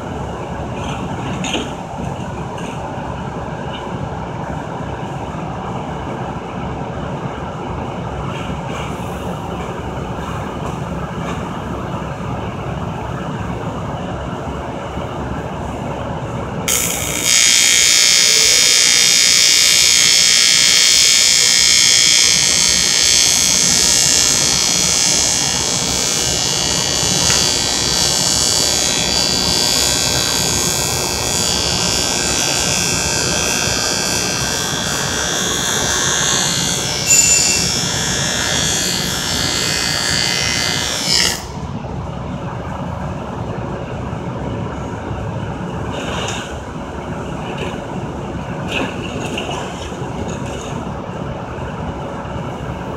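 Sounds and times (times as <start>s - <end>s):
low shop rumble: 0.0s - 52.9s
welding arc hissing: 16.7s - 41.6s.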